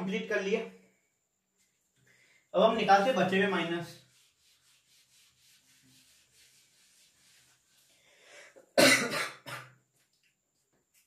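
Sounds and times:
duster wiping whiteboard: 0:02.8 - 0:08.0
man coughing: 0:08.8 - 0:09.7.

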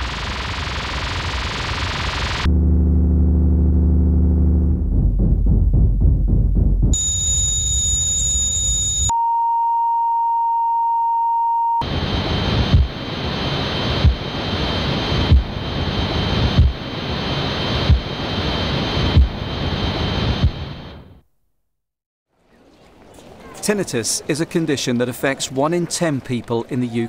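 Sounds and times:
high-pitched whine: 0:00.0 - 0:04.9, 0:07.0 - 0:21.1
pulsing low rumble: 0:00.0 - 0:09.1, 0:11.8 - 0:21.1
low buzz: 0:00.0 - 0:10.9, 0:11.8 - 0:21.2
steady mid-pitched tone: 0:07.0 - 0:21.0.

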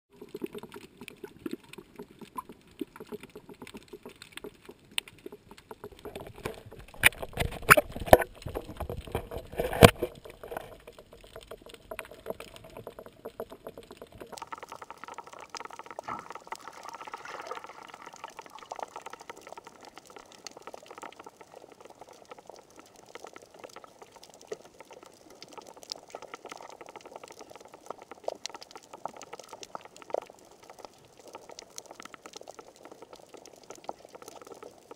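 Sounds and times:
underwater crackling clicks: 0:00.2 - 0:16.6, 0:17.3 - 0:34.9
bubbly water surges: 0:05.4 - 0:20.7.

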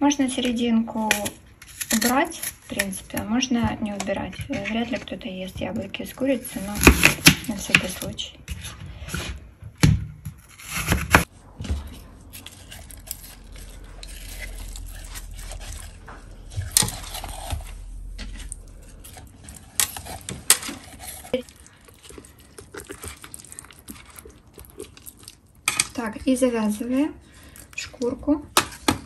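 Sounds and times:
wet handling noises: 0:11.7 - 0:29.0.

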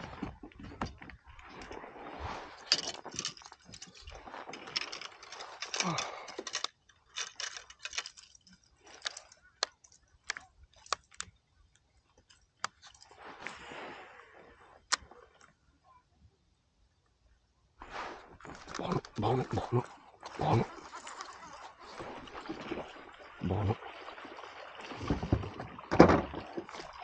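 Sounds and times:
fishing tackle rustling and knocking: 0:00.0 - 0:13.6, 0:17.8 - 0:23.0, 0:24.9 - 0:27.0.

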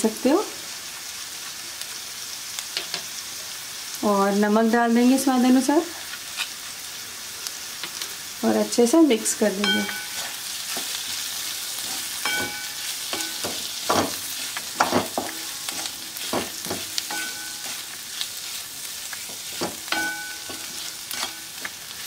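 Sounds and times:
frying sizzle: 0:00.0 - 0:22.0
pan ringing: 0:09.6 - 0:10.4, 0:12.2 - 0:13.6, 0:17.0 - 0:17.9, 0:19.9 - 0:21.6
spatula scraping metal pan: 0:09.6 - 0:22.0.

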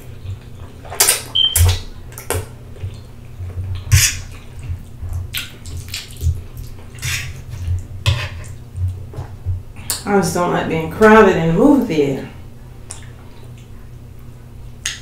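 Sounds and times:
slurps and smacks: 0:00.0 - 0:10.0
wet chewing: 0:00.0 - 0:10.0.

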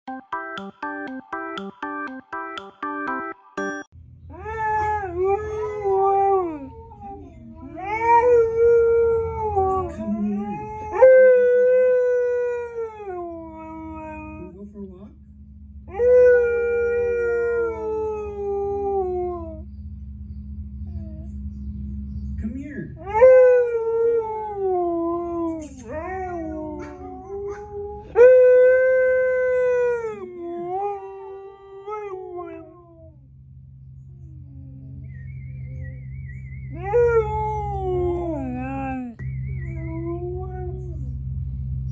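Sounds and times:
dog howling: 0:04.3 - 0:14.5, 0:23.0 - 0:33.1, 0:36.7 - 0:41.2.

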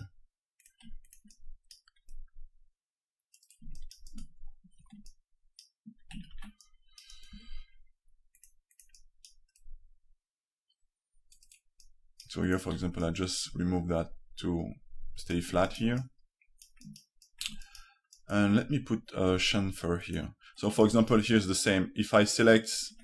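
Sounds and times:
mouse and keyboard clicking: 0:00.6 - 0:02.2, 0:03.3 - 0:07.5, 0:08.3 - 0:09.7, 0:16.6 - 0:18.3.

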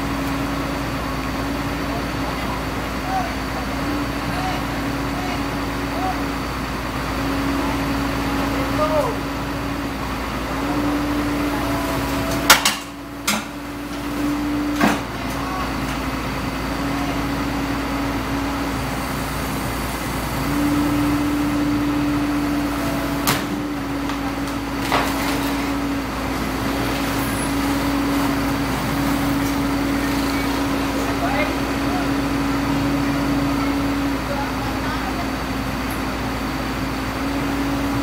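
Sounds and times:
excavator engine hum: 0:00.0 - 0:38.0.

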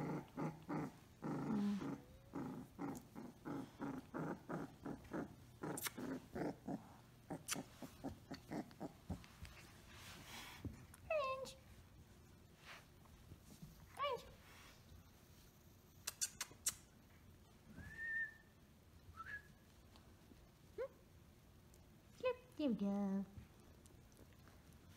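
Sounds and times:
puppy growling: 0:00.0 - 0:09.4
puppy whining: 0:00.0 - 0:09.4.

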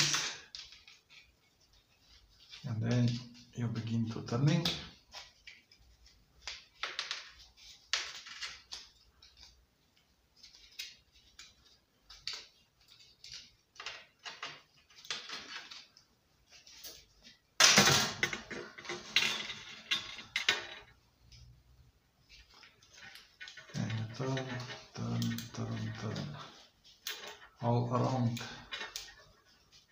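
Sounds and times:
plastic parts clattering: 0:00.0 - 0:01.1, 0:17.6 - 0:21.0, 0:27.0 - 0:29.4.

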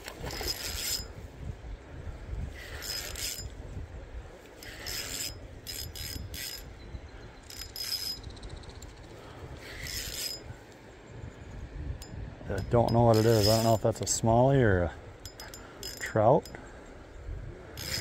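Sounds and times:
fishing reel whirring: 0:00.2 - 0:01.1, 0:02.6 - 0:03.6, 0:04.6 - 0:06.7, 0:07.4 - 0:08.4, 0:09.6 - 0:10.4, 0:17.8 - 0:18.0
fishing reel clicking: 0:00.3 - 0:01.1, 0:02.7 - 0:03.5, 0:04.6 - 0:06.7, 0:07.4 - 0:08.9, 0:09.6 - 0:10.4, 0:12.9 - 0:13.8, 0:15.2 - 0:16.6, 0:17.8 - 0:18.0.

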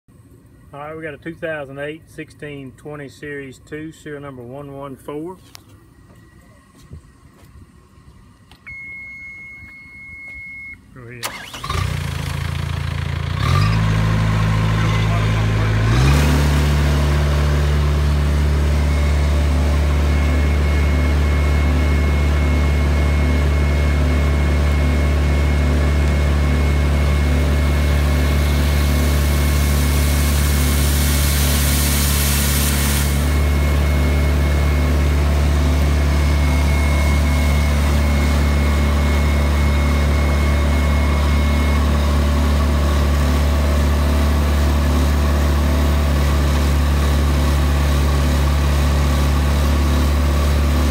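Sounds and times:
diesel drill engine running: 0:11.2 - 0:50.9
drilling fluid spraying hiss: 0:28.0 - 0:33.5.

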